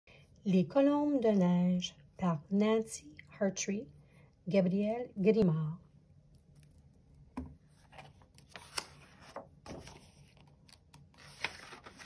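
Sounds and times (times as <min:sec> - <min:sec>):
book pages turning: 0:06.4 - 0:12.0.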